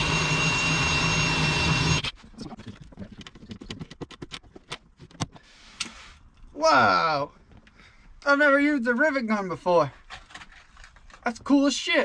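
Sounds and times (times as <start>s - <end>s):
cordless drill whining: 0.0s - 2.1s.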